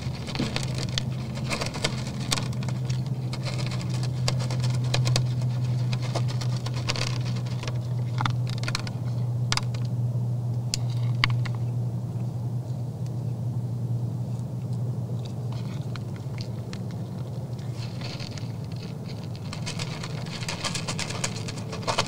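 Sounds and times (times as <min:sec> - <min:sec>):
deer crunching feed from metal pan: 0:00.0 - 0:09.8, 0:15.3 - 0:22.0
steady low hum: 0:00.0 - 0:22.0.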